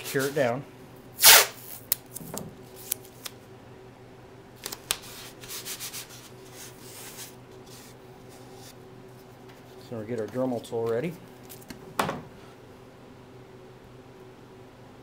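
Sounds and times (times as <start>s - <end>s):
tape rubbed down by hand: 1.2s - 1.9s, 5.0s - 9.7s
tape ripping off roll: 1.2s - 3.1s.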